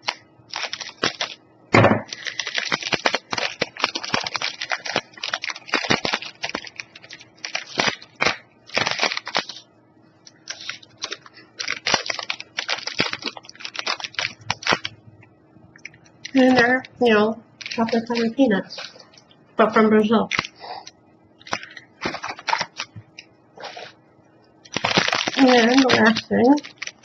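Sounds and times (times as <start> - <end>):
plastic wrapper crinkling: 0.0 - 1.4, 2.0 - 15.0, 15.8 - 19.4, 20.0 - 27.0
thump: 1.7 - 2.0.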